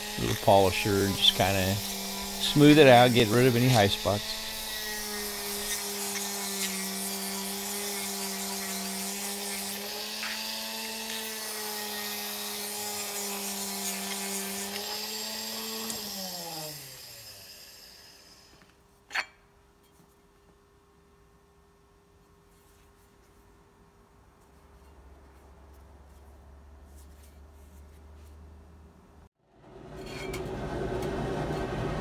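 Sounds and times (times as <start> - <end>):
polisher winding down: 0.0 - 6.4
rotary polisher whining and grinding: 0.0 - 18.8.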